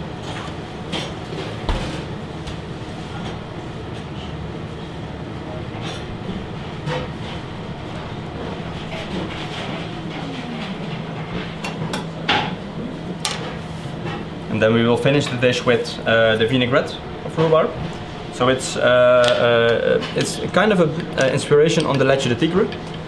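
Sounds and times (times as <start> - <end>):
kitchen machinery hum: 0.0 - 23.0.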